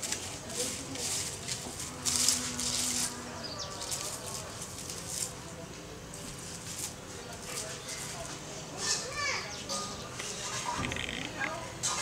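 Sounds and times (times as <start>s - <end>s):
dry leaves rustling: 0.0s - 9.1s.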